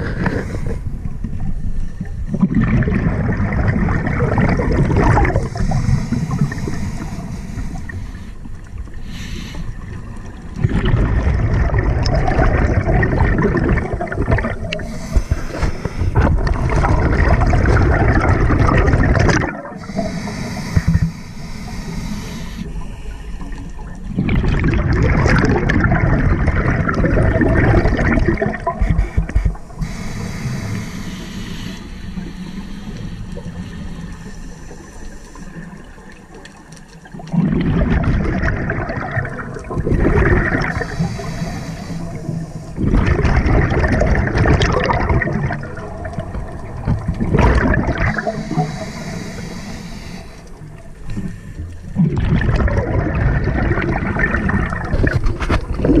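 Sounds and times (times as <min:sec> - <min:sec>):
regulator bubbles gurgling: 0:00.0 - 0:56.0
regulator breathing hiss: 0:05.4 - 0:09.9, 0:14.7 - 0:16.2, 0:19.8 - 0:23.7, 0:28.8 - 0:35.9, 0:40.6 - 0:42.8, 0:48.0 - 0:51.8.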